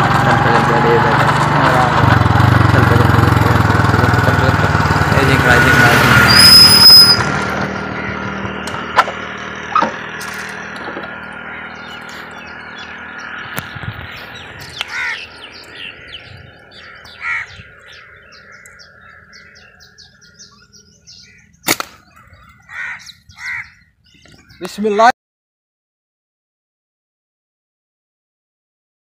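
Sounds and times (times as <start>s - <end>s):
birds giving short harsh calls: 5.7s - 25.1s
steady low hum: 7.2s - 24.0s
sharp snap: 21.6s - 22.0s.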